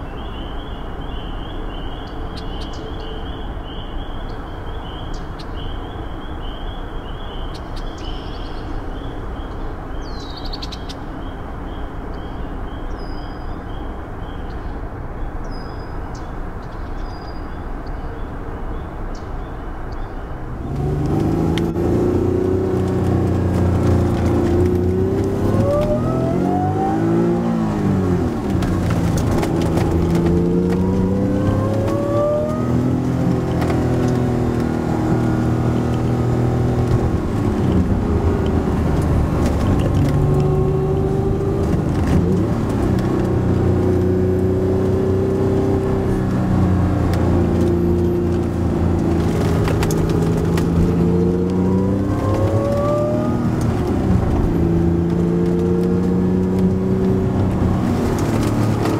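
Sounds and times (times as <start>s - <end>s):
car engine accelerating: 20.4s - 58.9s.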